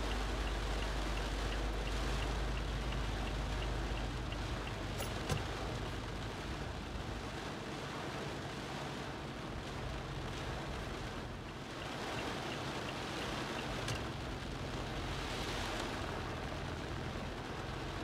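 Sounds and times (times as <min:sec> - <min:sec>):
faint rapid ticking: 0:00.0 - 0:06.8, 0:10.2 - 0:15.2
heavy rain drumming on car roof: 0:00.0 - 0:18.0.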